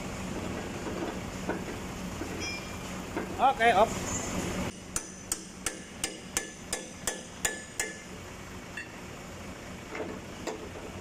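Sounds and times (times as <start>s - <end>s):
hammer striking steel: 4.7s - 8.1s.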